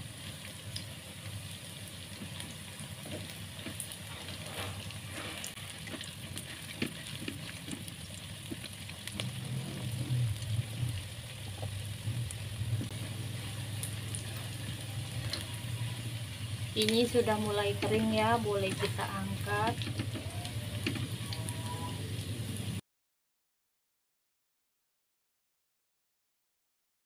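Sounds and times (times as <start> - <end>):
food sizzling in hot oil: 0.0 - 22.8
oil popping and crackling: 0.0 - 22.8
low hum: 9.0 - 22.8.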